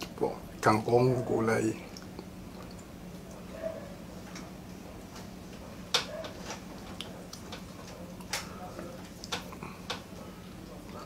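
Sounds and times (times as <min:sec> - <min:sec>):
chewing with lip smacks: 0:01.9 - 0:03.5.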